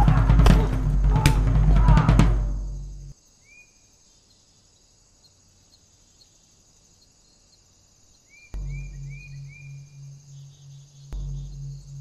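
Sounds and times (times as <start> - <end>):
drum-heavy soundtrack music: 0.0 - 3.1, 8.6 - 9.9, 11.1 - 12.0
high-pitched outdoor ambience: 0.8 - 12.0.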